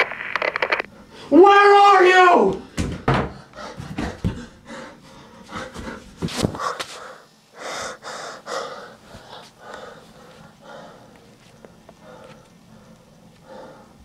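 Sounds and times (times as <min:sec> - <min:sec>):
person breathing heavily: 0:03.3 - 0:14.0.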